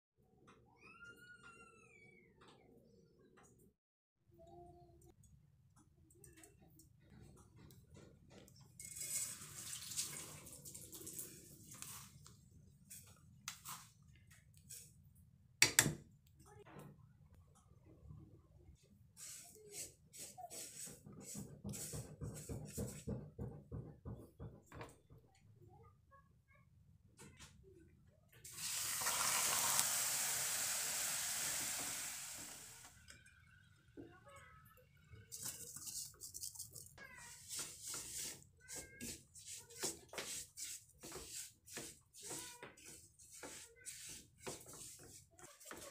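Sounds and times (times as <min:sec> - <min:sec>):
spoon scooping sugar: 0:19.2 - 0:20.9, 0:35.3 - 0:45.8
hot sugar hissing in pan: 0:28.5 - 0:32.8.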